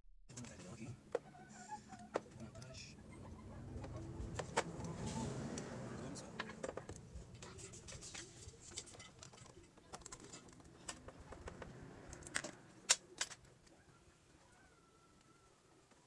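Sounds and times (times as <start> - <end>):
clicks and knocks of handled parts: 6.4 - 13.8.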